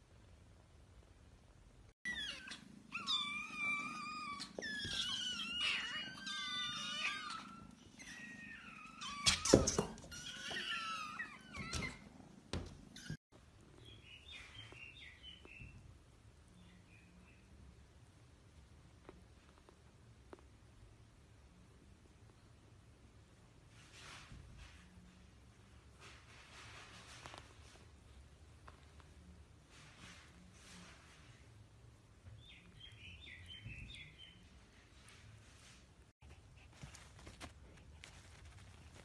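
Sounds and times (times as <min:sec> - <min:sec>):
faint high squeaks: 0:02.0 - 0:13.2
kittens meowing: 0:02.1 - 0:13.2.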